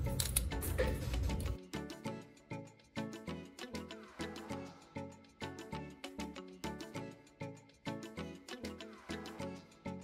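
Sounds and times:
background music with sharp notes: 0.0 - 10.0.

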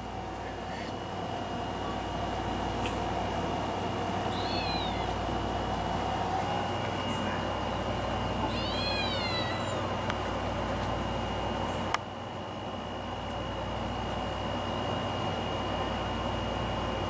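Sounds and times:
kitten meowing: 4.3 - 5.2, 8.4 - 9.9.

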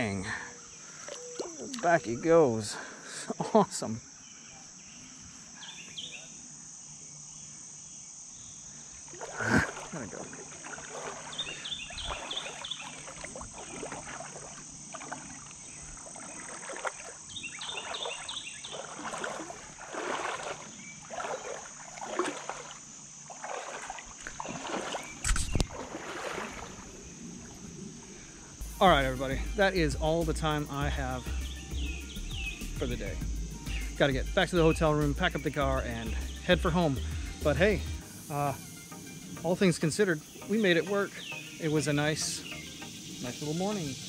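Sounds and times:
crickets and insects droning: 0.0 - 44.0
wading steps sloshing in water: 0.9 - 2.1, 9.0 - 28.2.

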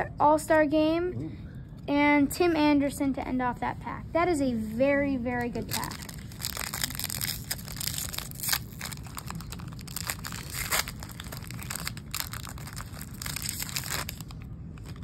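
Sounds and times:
wrapper tearing and crinkling: 5.6 - 15.0.

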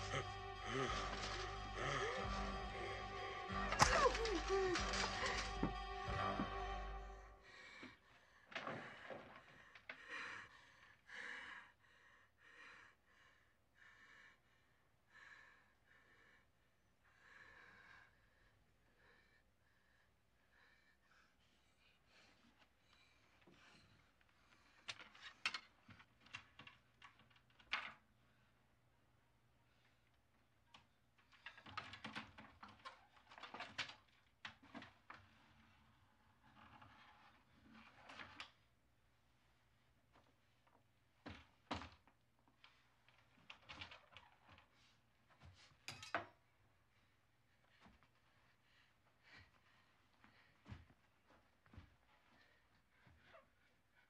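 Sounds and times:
woman panting and gasping: 3.8 - 5.1, 47.6 - 51.0.

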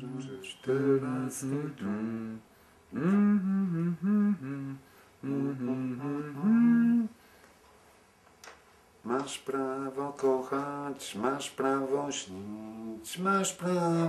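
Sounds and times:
man humming: 0.0 - 7.2.

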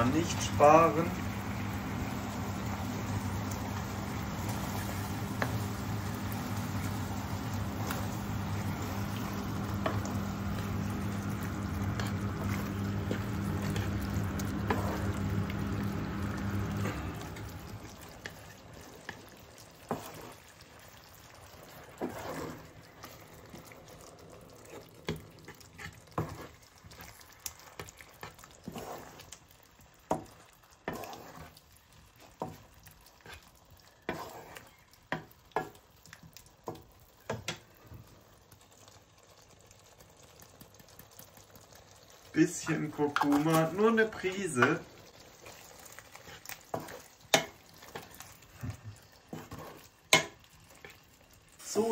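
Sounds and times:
steady low hum: 0.0 - 18.2
spatula stirring thick sauce: 0.0 - 51.9.

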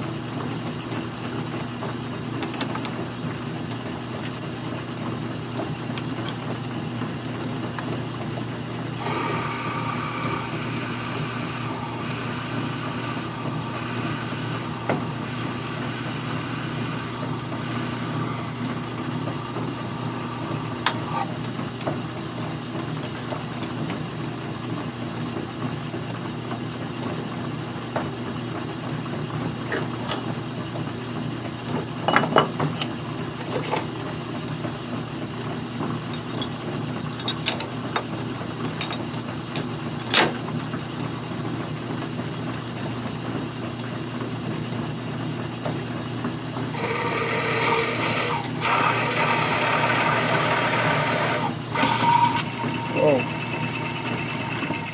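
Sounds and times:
metal lathe running: 8.8 - 22.5, 46.7 - 54.9
drill boring with high whine: 9.0 - 21.3, 46.7 - 54.9.

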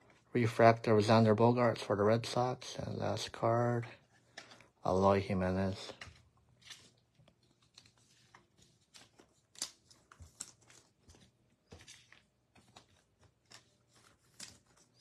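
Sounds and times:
cards sliding and shuffled: 4.0 - 4.8, 5.9 - 15.0.

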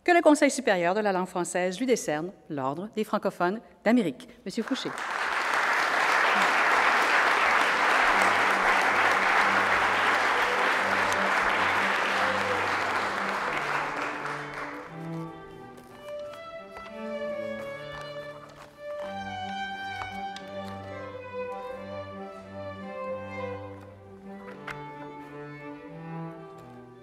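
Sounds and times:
audience applauding: 4.6 - 16.0
instrumental music: 5.7 - 27.0.

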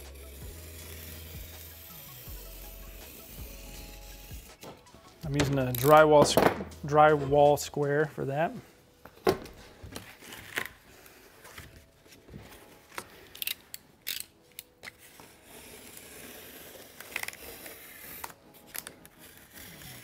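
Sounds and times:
blade scraping cardboard: 15.0 - 20.0.

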